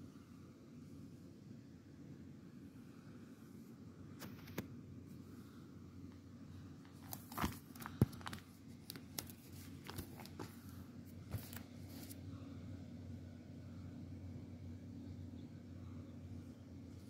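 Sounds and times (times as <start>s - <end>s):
plastic pages crinkling: 6.8s - 12.2s.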